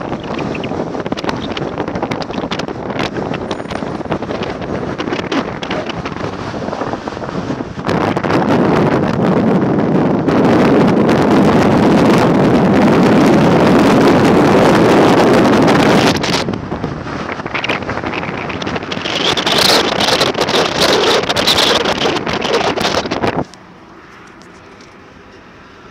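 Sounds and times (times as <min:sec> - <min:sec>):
road noise: 0:00.0 - 0:25.9
wind buffeting microphone: 0:00.0 - 0:25.9.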